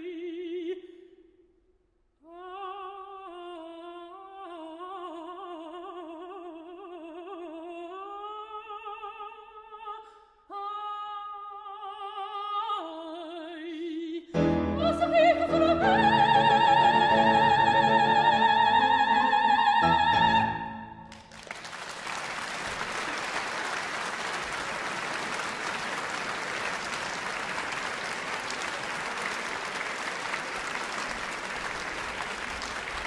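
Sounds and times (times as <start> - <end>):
audience applause: 21.0 - 33.0.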